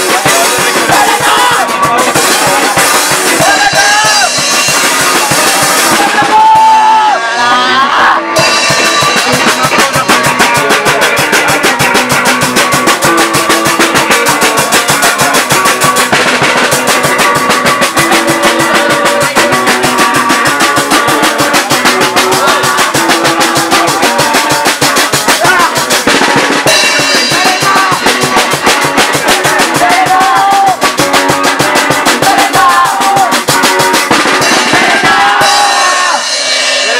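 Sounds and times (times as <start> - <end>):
drum kit pounding: 0.0 - 36.9
punk band playing live: 0.0 - 36.9
person shouting vocals: 0.9 - 1.8, 3.4 - 4.4, 5.9 - 8.4, 29.8 - 30.8.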